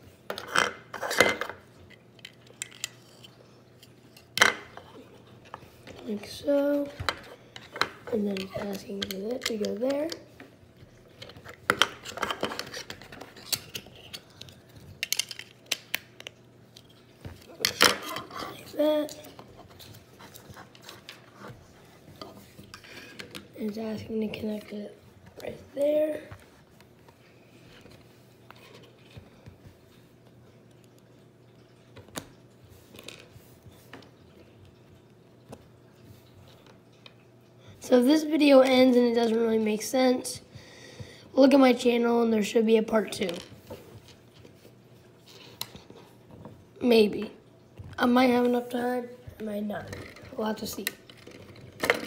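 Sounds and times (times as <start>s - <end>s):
plastic pieces clicking: 11.2s - 16.9s.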